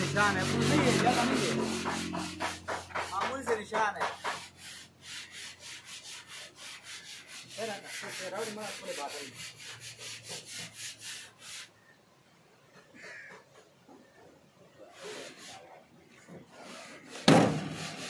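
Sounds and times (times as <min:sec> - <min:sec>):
rhythmic scraping strokes: 0:00.0 - 0:11.6.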